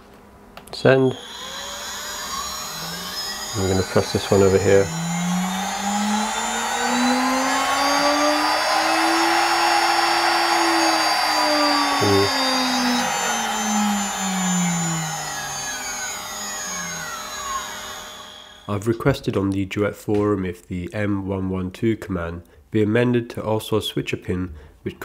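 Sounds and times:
spindle motor whining: 0.8 - 18.7.

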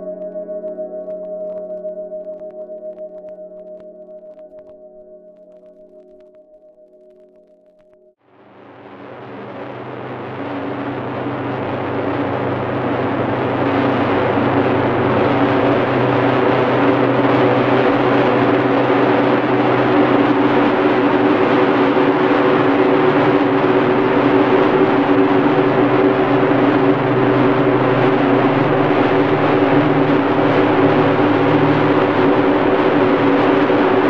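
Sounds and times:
dense noisy electronic drone: 8.3 - 34.0.

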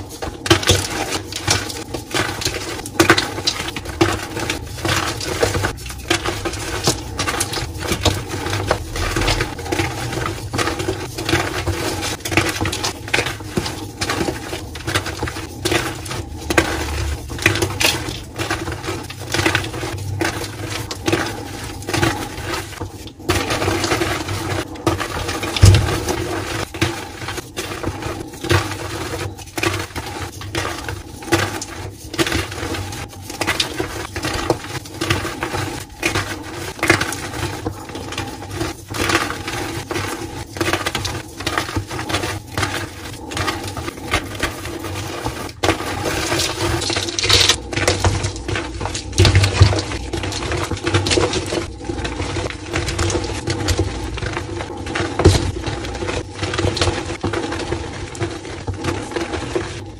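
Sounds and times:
chalk blocks crunching by hand: 0.0 - 59.9
chalk pieces falling on pile: 40.0 - 52.2.

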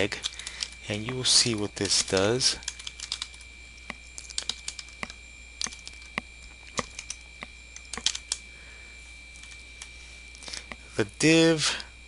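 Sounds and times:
keyboard keystroke clicks: 7.8 - 8.4.

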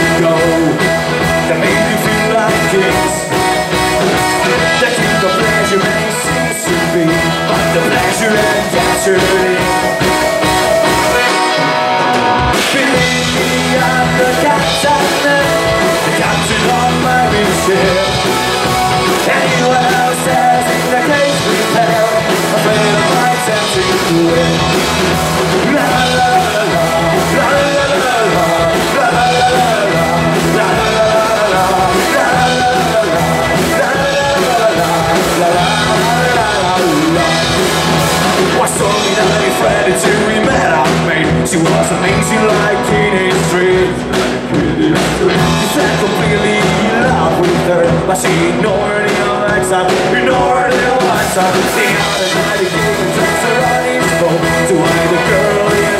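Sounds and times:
accordion: 0.0 - 55.9
live rock band playing: 0.0 - 55.9
man singing: 0.0 - 55.9.

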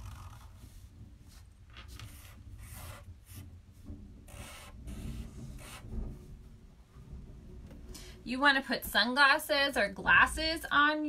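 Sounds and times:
marker rubbing on paper: 0.0 - 3.6, 4.3 - 5.9.

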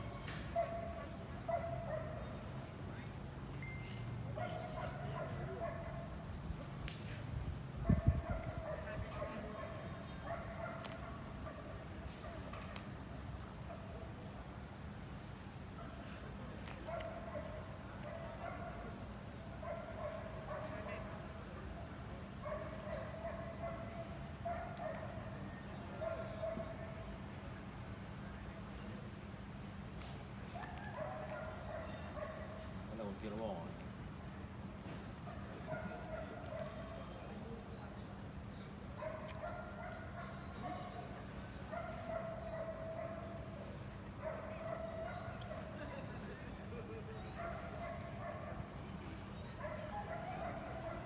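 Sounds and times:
dog barking: 0.5 - 2.4, 4.4 - 6.1, 7.8 - 12.4, 16.9 - 18.9, 19.6 - 21.0, 22.4 - 25.2, 26.0 - 27.0, 30.6 - 32.6, 35.7 - 36.8, 39.0 - 43.4, 44.2 - 45.8, 47.3 - 48.7, 49.5 - 51.0.

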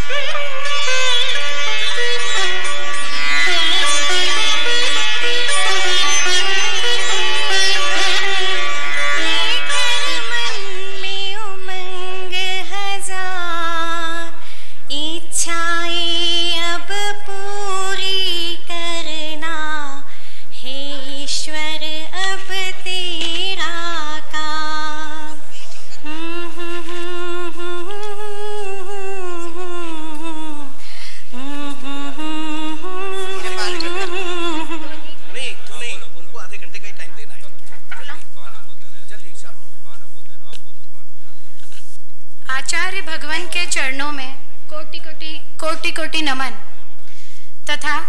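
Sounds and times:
woman singing slow melody: 9.2 - 35.0.

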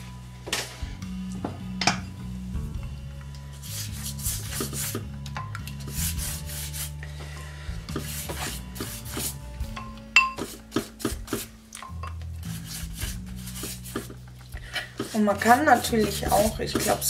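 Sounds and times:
pastry brush swishing over dough: 3.6 - 5.0, 5.8 - 7.0, 7.9 - 9.4, 12.4 - 14.2, 14.8 - 17.0.

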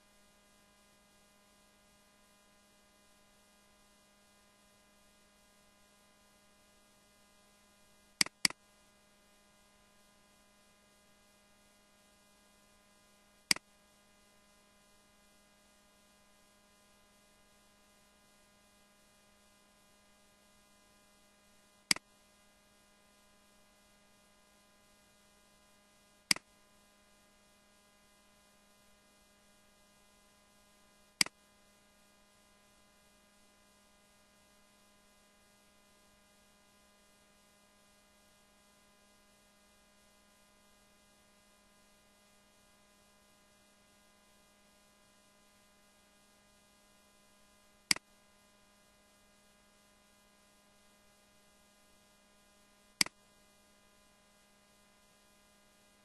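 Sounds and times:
faint electrical hum: 0.0 - 56.0
computer mouse clicking: 8.2 - 8.6.

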